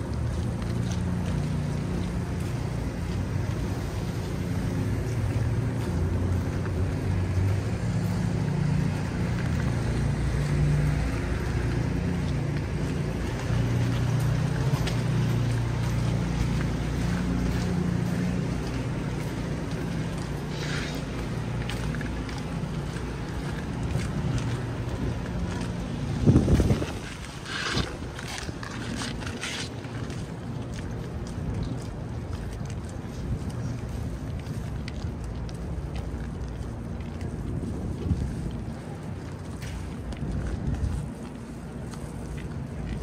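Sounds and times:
street traffic rumble: 0.0 - 43.0
wind noise: 22.9 - 30.6, 31.5 - 43.0.

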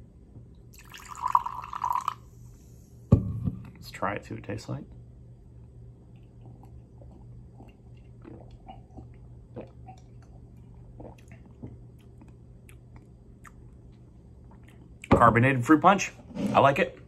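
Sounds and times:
low steady hum: 0.0 - 17.0
person sipping and swallowing: 6.1 - 13.6.

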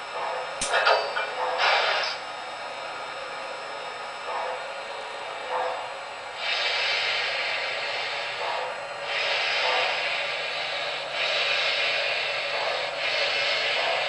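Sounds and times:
model train running noise: 0.0 - 14.0
model locomotive steam hiss: 1.6 - 2.2, 6.2 - 14.0.

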